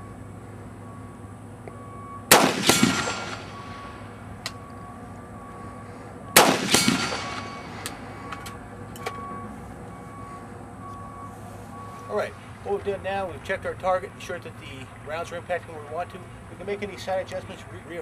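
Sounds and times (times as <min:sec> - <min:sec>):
rifle shots with echo: 0:02.3 - 0:04.0, 0:06.4 - 0:07.8.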